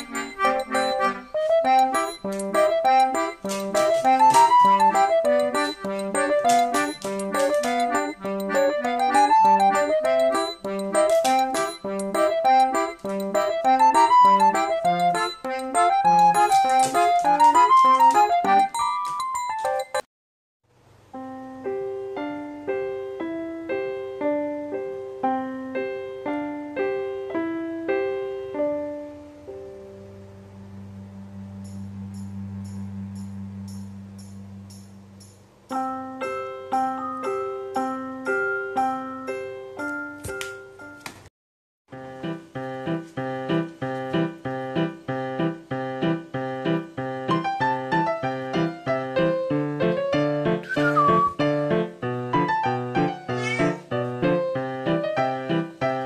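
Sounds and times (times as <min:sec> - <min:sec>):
keyboard playing gentle notes: 0:00.0 - 0:20.0, 0:35.7 - 0:41.0, 0:41.9 - 0:56.0.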